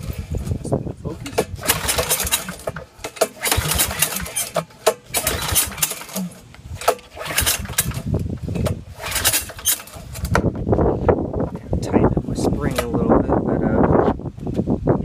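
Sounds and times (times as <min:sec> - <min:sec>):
recoil starter rope whirring: 0:00.0 - 0:11.3
engine cranking and chugging: 0:00.0 - 0:13.1.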